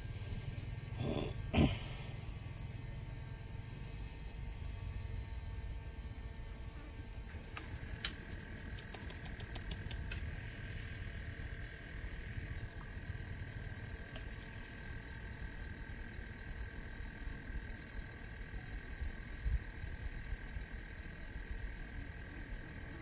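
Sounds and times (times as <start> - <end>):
insects trilling: 0.0 - 23.0
quick ticks: 7.6 - 10.4.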